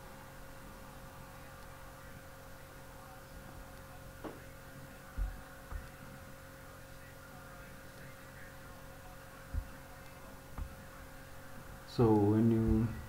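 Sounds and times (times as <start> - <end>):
electrical hum: 0.0 - 13.0
short low thumps: 5.2 - 5.9, 9.5 - 9.8, 10.6 - 10.8, 12.6 - 13.0.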